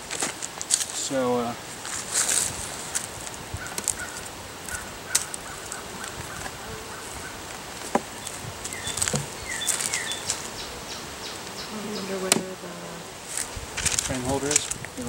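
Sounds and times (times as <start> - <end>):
birds chirping: 2.8 - 15.0.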